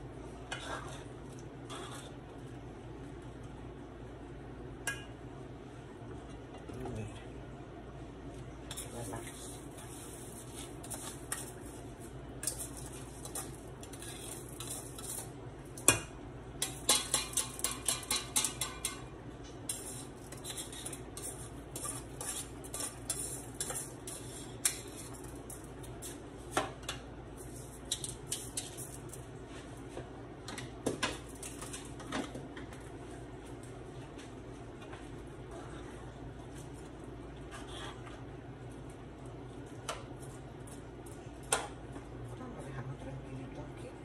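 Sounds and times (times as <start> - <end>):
metal spoon clinking on strainer: 16.6 - 19.1.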